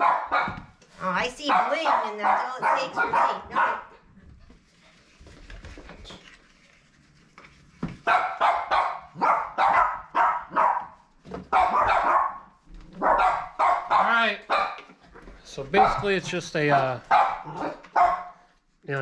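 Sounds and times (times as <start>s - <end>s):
dog barking: 0.0s - 0.7s, 1.4s - 3.9s, 8.0s - 14.9s, 15.8s - 18.4s.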